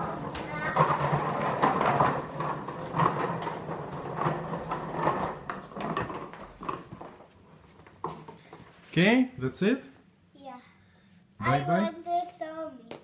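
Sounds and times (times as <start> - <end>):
plastic suitcase rolling on wooden floor: 0.0 - 8.7.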